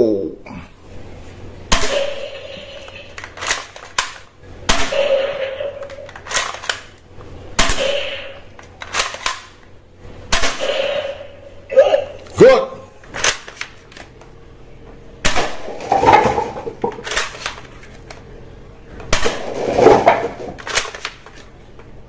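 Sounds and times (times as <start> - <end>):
toy gun shots: 1.7 - 6.9, 7.6 - 9.5, 10.3 - 11.3.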